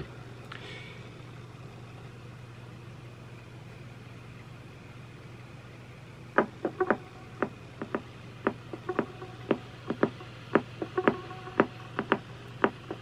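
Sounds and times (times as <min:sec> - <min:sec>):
cassette player hum: 0:00.0 - 0:13.0
sharp percussive notes: 0:06.4 - 0:13.0.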